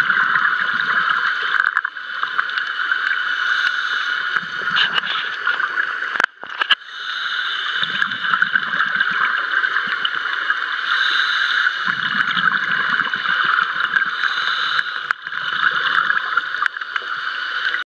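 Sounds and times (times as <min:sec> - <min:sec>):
low gurgling rumble of bubbles: 0:00.0 - 0:02.6, 0:04.4 - 0:06.3, 0:07.8 - 0:10.7, 0:11.8 - 0:14.2, 0:15.1 - 0:17.2
underwater hiss: 0:00.1 - 0:17.8.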